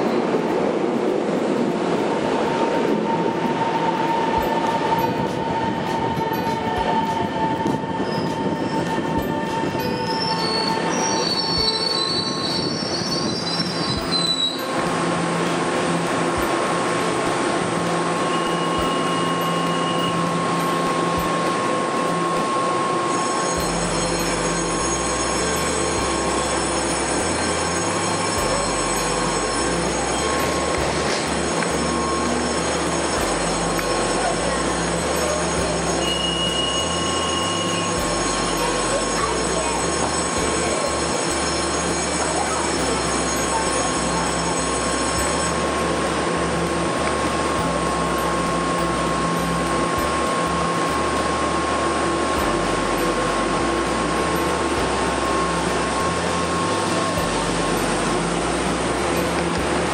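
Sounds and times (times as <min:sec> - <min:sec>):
stopped train humming: 0:00.0 - 0:59.9
train rolling and braking: 0:00.0 - 0:59.9
brake and wheel squeal: 0:08.0 - 0:14.7, 0:18.2 - 0:20.8, 0:22.8 - 0:45.7.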